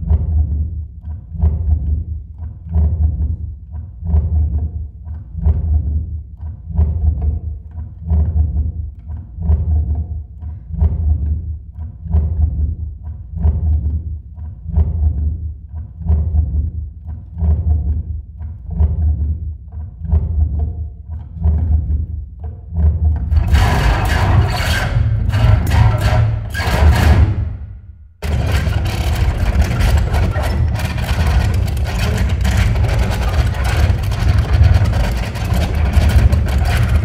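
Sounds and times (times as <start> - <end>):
guitar low thudding pulse: 23.2 - 37.0.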